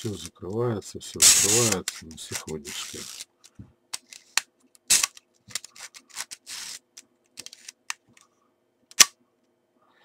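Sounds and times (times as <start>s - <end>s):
camera shutter clicks and winding rasps: 1.2s - 3.3s, 4.0s - 6.8s.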